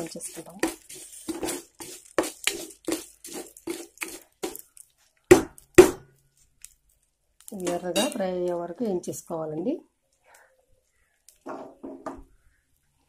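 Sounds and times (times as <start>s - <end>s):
spatula scraping a pan: 0.0s - 4.7s.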